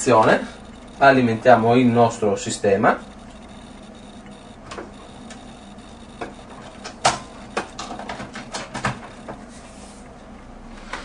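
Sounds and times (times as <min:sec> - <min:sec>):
equipment clicks and knocks: 0:06.2 - 0:09.4.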